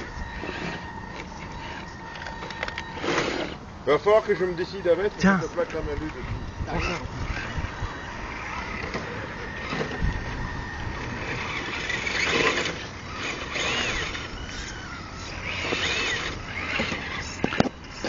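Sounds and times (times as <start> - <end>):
electric motor and gearbox whining: 0.0 - 18.0.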